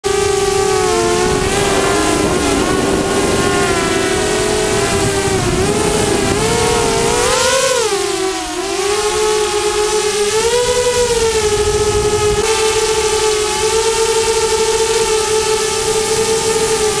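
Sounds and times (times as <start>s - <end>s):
drone motors whining: 0.0s - 17.0s
air rushing: 0.6s - 8.3s.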